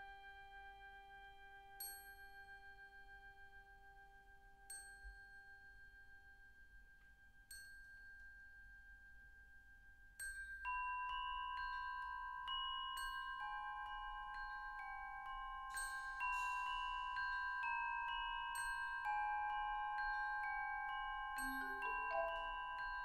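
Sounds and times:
bell-like struck notes: 10.2s - 23.0s.

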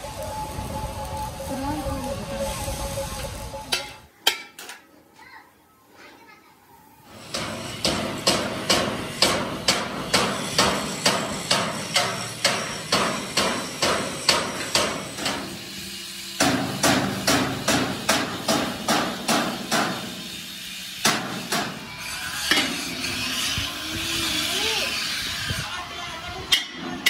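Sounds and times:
hammer blows on metal: 7.2s - 15.8s, 16.4s - 20.3s, 21.0s - 23.5s.

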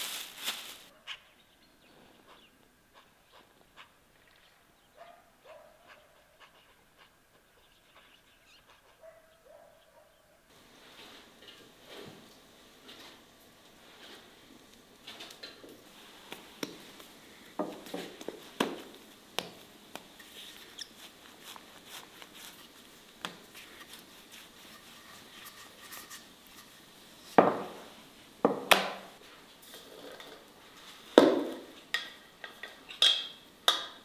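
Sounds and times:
rolling pin scuffing dough: 15.9s - 29.3s.

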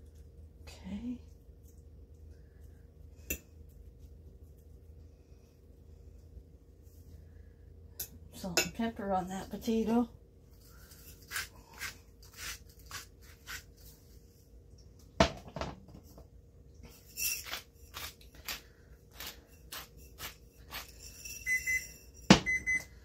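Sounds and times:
kitchen timer beeping: 21.4s - 23.0s.

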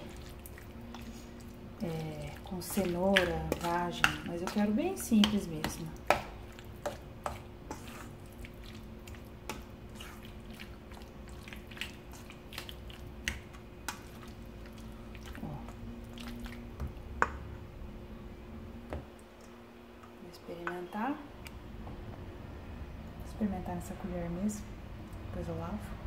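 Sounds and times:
wet squishing of salad: 0.0s - 17.5s
steady low hum: 0.0s - 26.0s.

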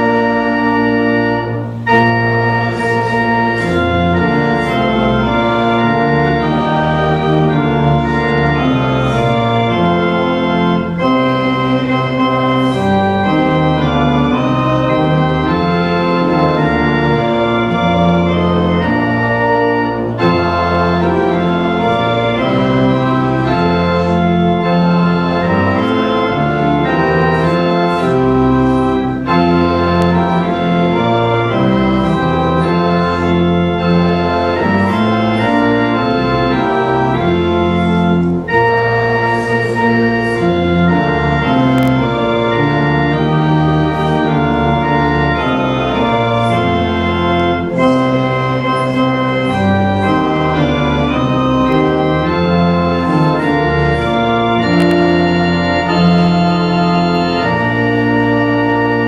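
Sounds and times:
pipe organ playing held chords: 0.0s - 59.0s.

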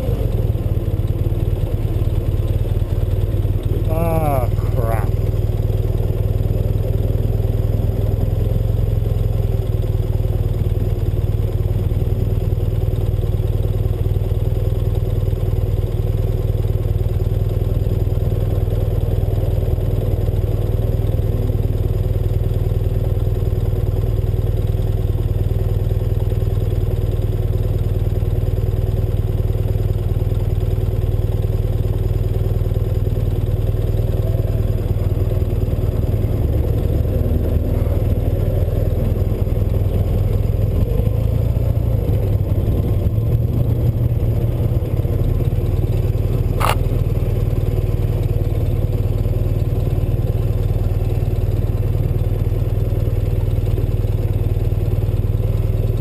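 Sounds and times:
motorcycle engine idling: 0.0s - 56.0s.

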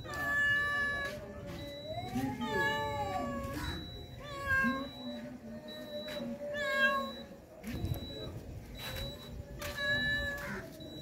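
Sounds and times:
cats meowing: 0.0s - 7.3s, 9.6s - 11.0s.

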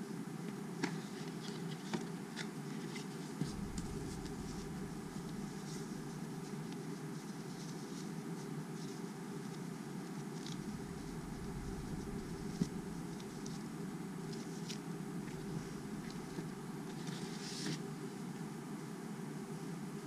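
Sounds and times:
steady low hum: 3.4s - 7.7s, 10.4s - 18.2s.

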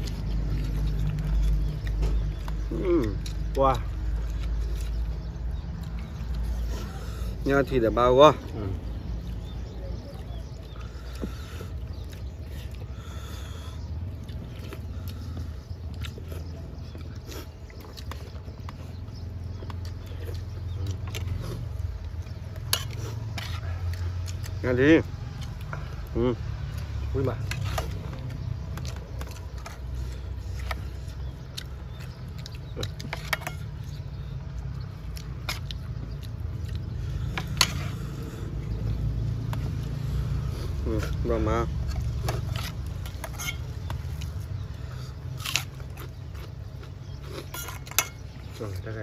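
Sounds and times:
small clicks and taps of eating: 0.0s - 6.5s, 14.2s - 23.0s
people chewing food: 0.0s - 49.0s.

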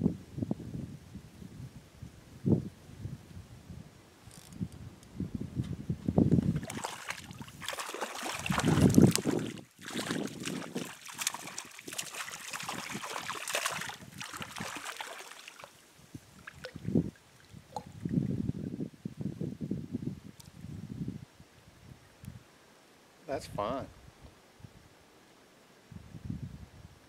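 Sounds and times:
wind buffeting microphone: 0.0s - 15.1s, 16.0s - 22.5s, 25.9s - 27.0s
fish splashing at water surface: 6.5s - 15.8s.

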